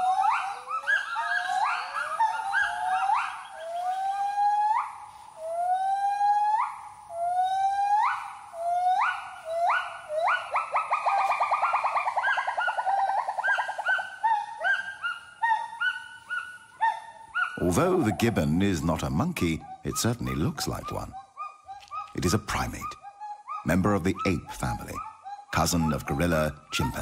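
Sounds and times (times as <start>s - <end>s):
gibbon calling: 0.0s - 27.0s.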